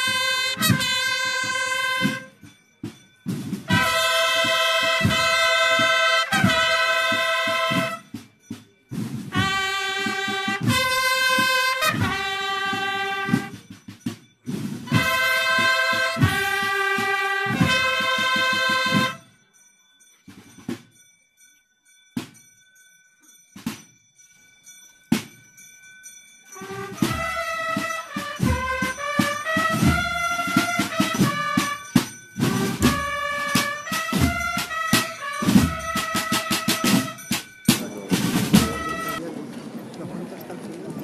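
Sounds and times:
brass melody: 0.0s - 2.5s, 3.6s - 8.2s, 9.2s - 13.8s, 14.8s - 19.3s, 26.5s - 39.3s
drum beats: 0.0s - 19.3s, 20.2s - 21.0s, 22.2s - 22.6s, 23.6s - 24.0s, 25.1s - 25.7s, 26.4s - 39.5s.

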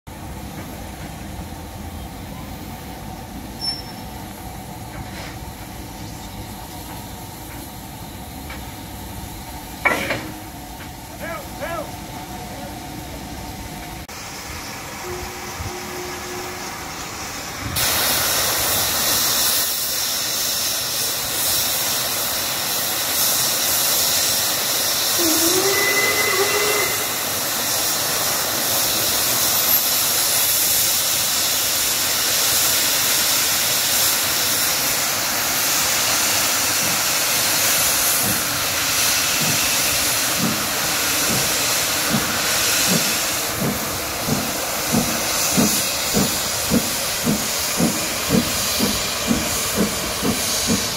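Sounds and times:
steam locomotive hissing: 0.1s - 50.9s
locomotive exhaust beats: 36.7s - 50.9s.

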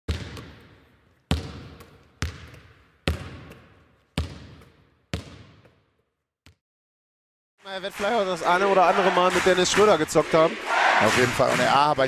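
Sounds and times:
basketball bouncing on hard court: 0.1s - 6.6s.

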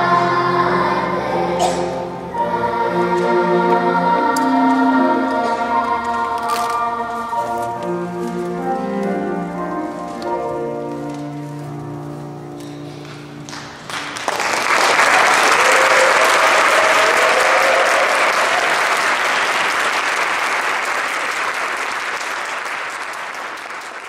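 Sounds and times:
children's choir singing chord: 0.0s - 11.4s
audience applause: 13.5s - 24.0s.

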